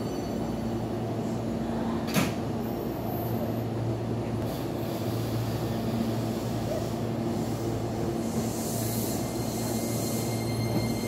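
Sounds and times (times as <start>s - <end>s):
electric train low hum: 0.0s - 11.0s.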